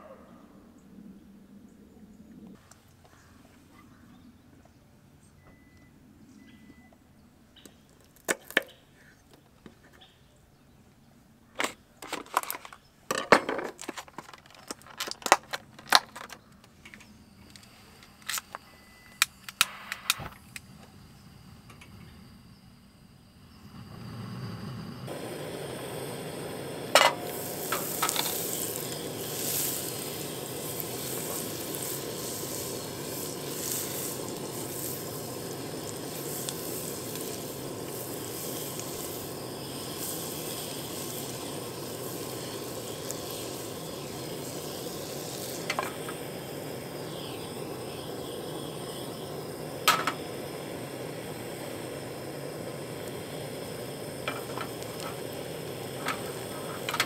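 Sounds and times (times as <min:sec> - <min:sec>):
clatter of small hard objects: 0:12.0 - 0:17.0
sizzling hiss: 0:16.9 - 0:57.0.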